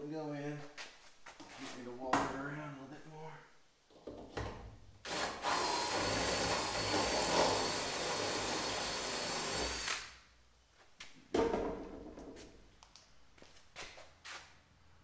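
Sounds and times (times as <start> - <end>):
cordless drill drilling metal: 5.0 - 10.1.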